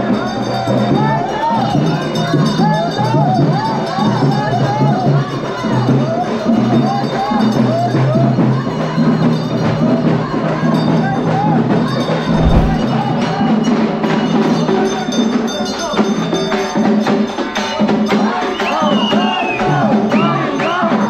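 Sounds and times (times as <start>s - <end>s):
low thump: 12.3s - 12.9s.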